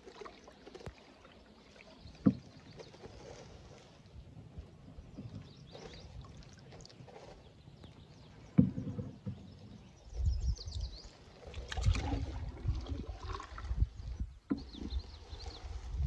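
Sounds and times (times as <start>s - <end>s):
paddle knocking canoe: 0.0s - 16.0s
paddle strokes splashing: 0.0s - 16.0s
small birds chirping: 7.2s - 11.5s.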